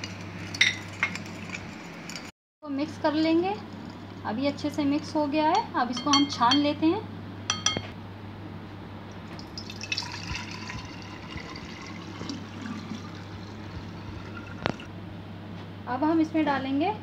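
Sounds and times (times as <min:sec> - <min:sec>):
water trickling through strainer: 0:09.2 - 0:14.9.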